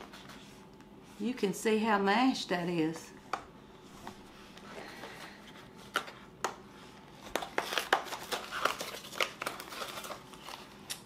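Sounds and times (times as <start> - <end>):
packaging crackling and rustling: 7.1 - 11.0.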